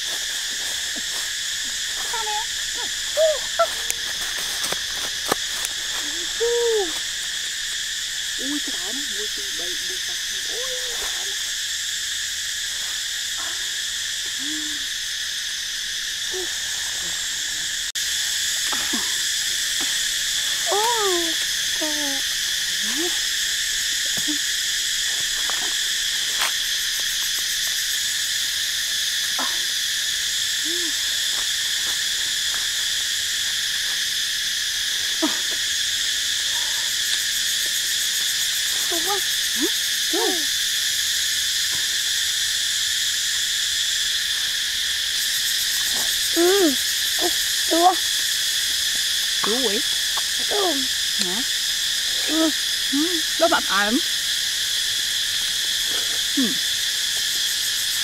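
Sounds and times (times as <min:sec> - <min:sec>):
insect chorus droning: 0:00.0 - 0:58.0.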